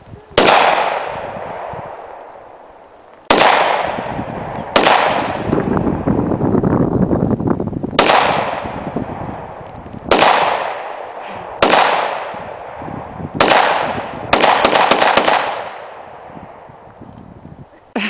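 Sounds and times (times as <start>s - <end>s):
pistol shots with echo: 0.4s - 2.3s, 3.3s - 5.6s, 8.0s - 12.8s, 13.4s - 16.7s.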